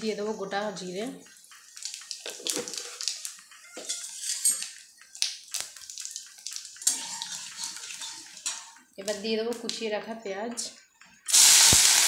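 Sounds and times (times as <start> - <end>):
spices sizzling in hot oil: 1.3 - 8.9, 11.3 - 12.0
metal spatula scraping pan: 3.8 - 4.7, 6.8 - 8.8.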